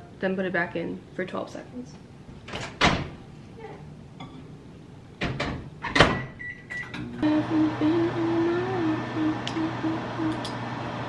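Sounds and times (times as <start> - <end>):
microwave humming: 6.0 - 11.0.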